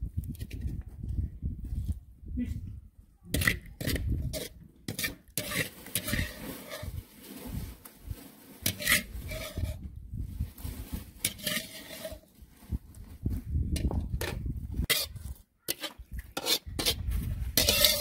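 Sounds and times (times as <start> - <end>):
metal skimmer scraping frying pan: 4.4 - 7.5, 8.4 - 9.8, 11.2 - 12.3, 14.2 - 17.0, 17.6 - 18.0.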